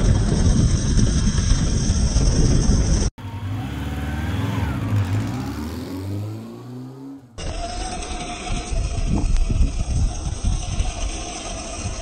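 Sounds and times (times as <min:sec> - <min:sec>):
beach ambience: 0:03.2 - 0:12.0
engine-style revving rising in pitch: 0:03.2 - 0:12.0.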